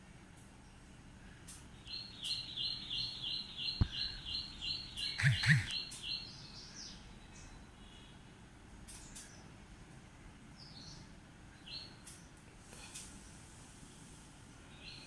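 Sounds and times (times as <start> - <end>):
bird chirping: 0.6 - 8.3, 10.5 - 12.4, 14.6 - 15.0.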